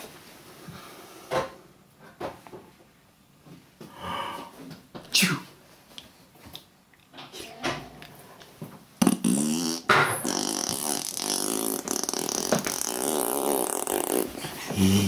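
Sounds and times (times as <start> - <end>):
person blowing a raspberry: 9.0 - 15.0.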